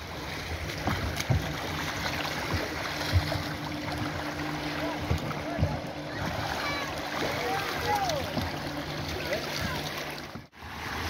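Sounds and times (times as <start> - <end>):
waves washing over sandy shore: 0.0 - 11.0
low thumps: 2.3 - 6.5.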